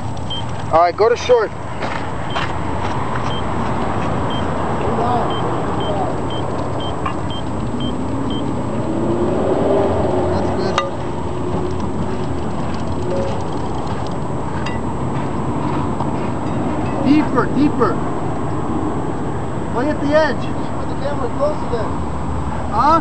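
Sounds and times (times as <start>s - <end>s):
outdoor background noise: 0.0s - 23.0s
short high beeps: 5.3s - 8.5s.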